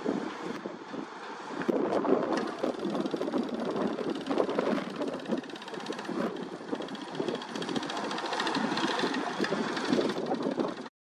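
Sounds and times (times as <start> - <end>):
vibratory pile hammer rattling: 2.4 - 10.9.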